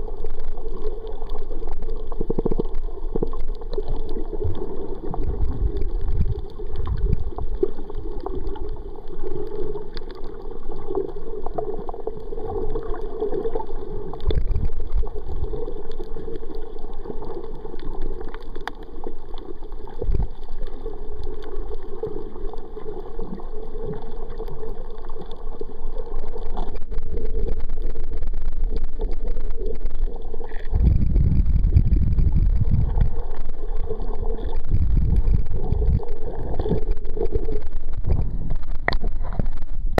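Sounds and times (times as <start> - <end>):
muffled underwater water rush: 0.0 - 39.9
heavy low rumbling: 30.7 - 33.2, 34.6 - 36.1.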